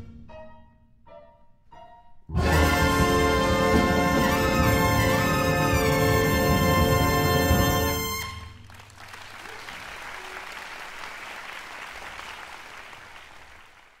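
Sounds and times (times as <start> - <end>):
wind band chord: 2.3 - 8.4
audience applauding: 3.8 - 14.0.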